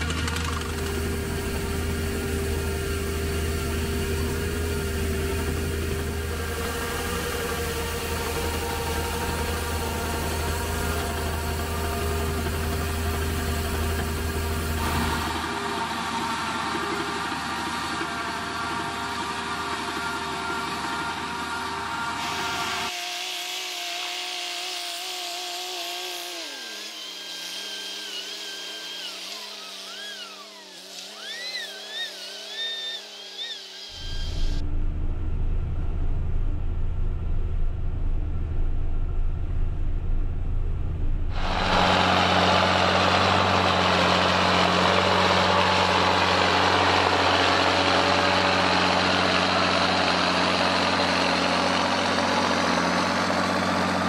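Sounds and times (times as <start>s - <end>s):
tractor engine under load: 0.0s - 22.2s, 34.0s - 54.0s
steady whine: 0.0s - 22.9s, 29.4s - 54.0s
harrow working soil: 0.0s - 34.6s, 41.3s - 54.0s.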